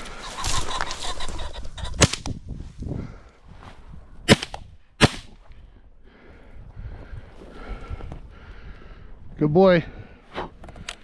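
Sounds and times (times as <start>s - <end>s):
shotgun shots: 4.3s - 5.3s.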